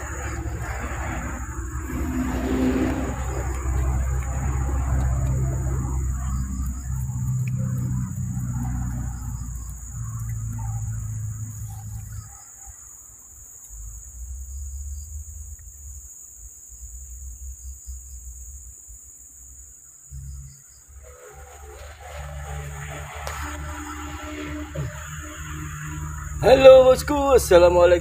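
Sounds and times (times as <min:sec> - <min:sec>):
low rumble: 0:00.0 - 0:12.2, 0:20.9 - 0:27.8
insects chirping: 0:00.0 - 0:28.0.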